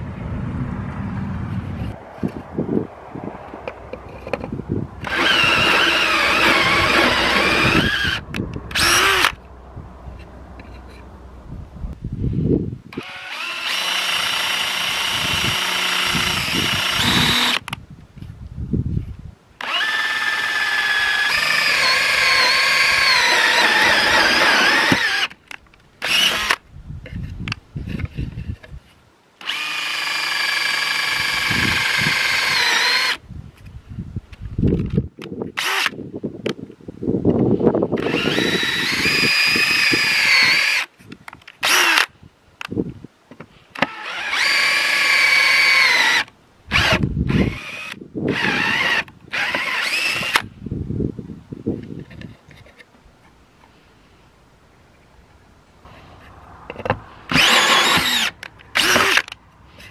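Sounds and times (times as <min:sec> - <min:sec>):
cordless drill whining: 0:05.0 - 0:09.4, 0:12.9 - 0:17.7, 0:19.6 - 0:25.4, 0:26.0 - 0:26.6, 0:29.4 - 0:33.2, 0:38.0 - 0:40.9, 0:41.6 - 0:42.1, 0:43.8 - 0:50.5, 0:57.3 - 0:59.9
drill bit cutting board: 0:05.0 - 0:09.4, 0:13.0 - 0:17.6, 0:19.6 - 0:25.3, 0:29.4 - 0:33.2, 0:38.0 - 0:40.8, 0:43.8 - 0:50.4, 0:57.3 - 0:59.3.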